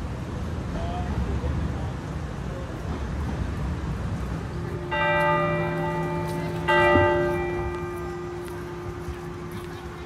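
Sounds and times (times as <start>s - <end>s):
bell ringing: 4.7s - 10.0s.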